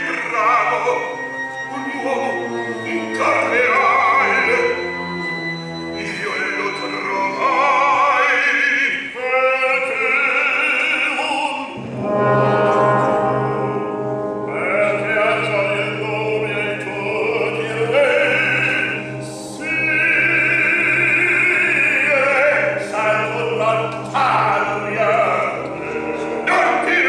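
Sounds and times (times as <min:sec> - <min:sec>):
operatic bass singing: 0:00.0 - 0:27.0
orchestra playing: 0:00.0 - 0:27.0
low held orchestral note: 0:11.8 - 0:15.9.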